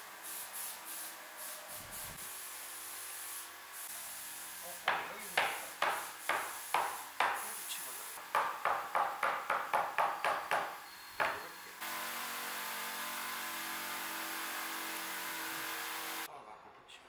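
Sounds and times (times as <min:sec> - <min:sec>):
rubber mallet knocking wood: 0:08.3 - 0:11.4.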